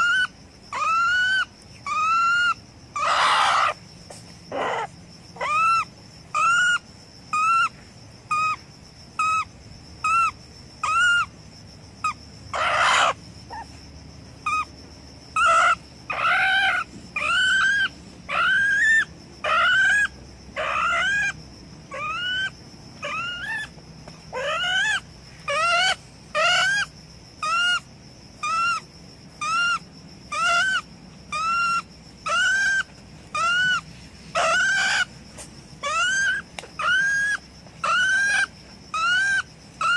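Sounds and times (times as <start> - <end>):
ferret-badger squealing: 0.0 - 3.8, 4.5 - 5.8, 12.5 - 13.7, 15.4 - 23.7, 24.3 - 27.8, 29.4 - 35.1, 35.8 - 39.9.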